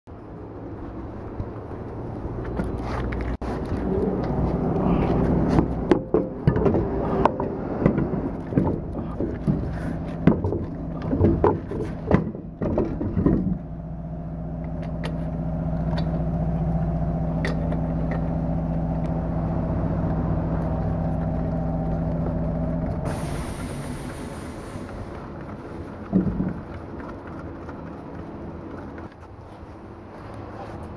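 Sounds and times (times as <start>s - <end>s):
steady mechanical hum: 0.1s - 30.9s
metal wheel clanks and knocks: 5.5s - 13.7s.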